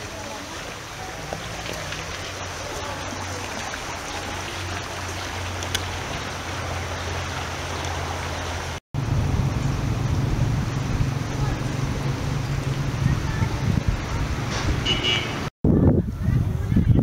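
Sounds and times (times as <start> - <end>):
stream water flowing: 0.0 - 15.5.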